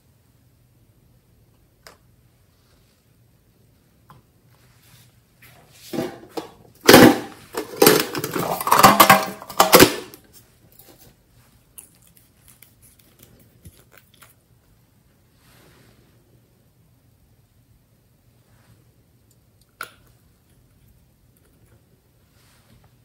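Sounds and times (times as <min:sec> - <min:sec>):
metal tin clattering: 0:05.9 - 0:10.2.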